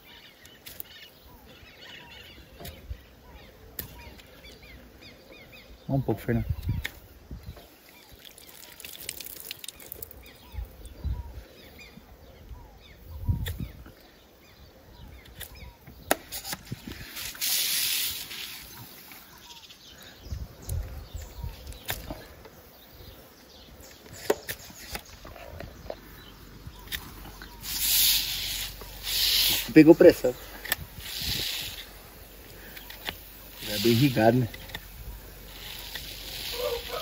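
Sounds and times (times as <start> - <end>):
water squirting hiss: 7.8 - 10.4, 16.2 - 19.5, 26.8 - 37.0.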